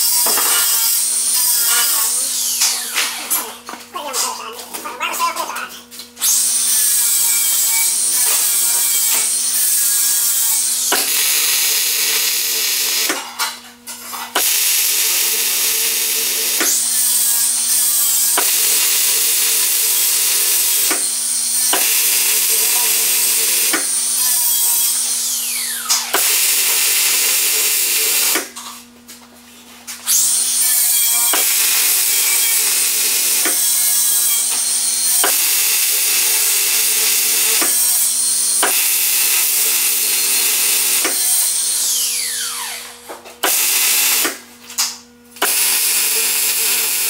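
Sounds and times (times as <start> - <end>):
welder low hum: 5.1 - 13.2, 14.4 - 28.5
welding arc crackling: 6.5 - 13.2, 14.4 - 25.0, 26.1 - 28.4, 45.4 - 47.0.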